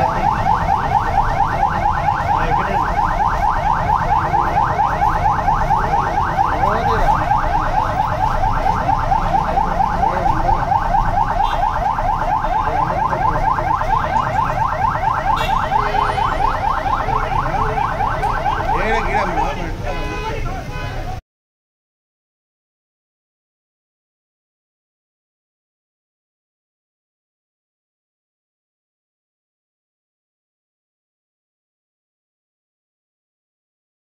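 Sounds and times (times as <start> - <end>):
electronic siren chirping: 0.0 - 19.6.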